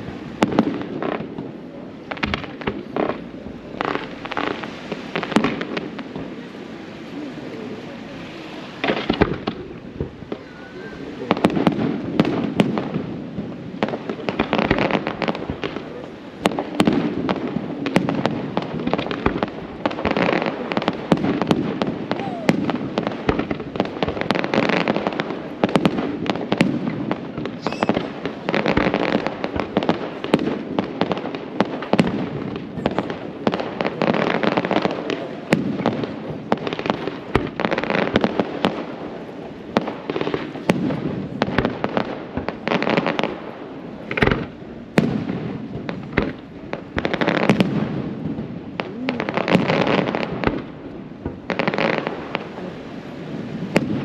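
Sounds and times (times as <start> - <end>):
fireworks shells bursting: 27.6 - 28.3.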